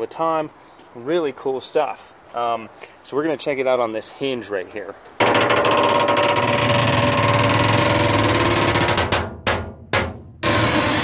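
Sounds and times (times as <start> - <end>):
metal hinge creaking: 5.2 - 11.0.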